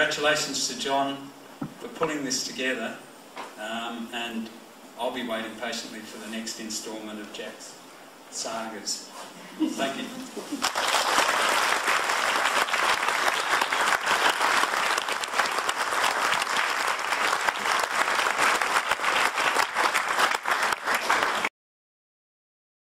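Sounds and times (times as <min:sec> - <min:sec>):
audience applauding: 0:10.6 - 0:21.5.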